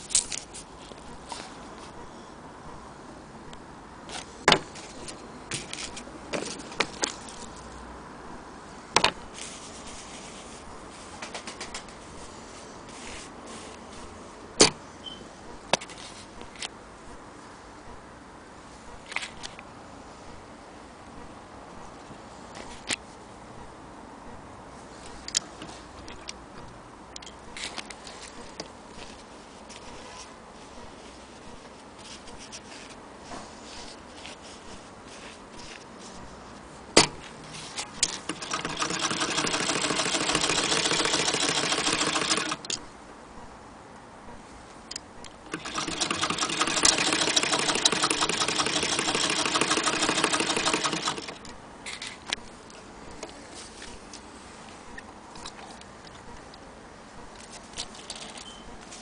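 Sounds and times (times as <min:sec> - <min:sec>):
sewing machine clicks and taps: 0:38.1 - 0:42.7, 0:45.5 - 0:51.4.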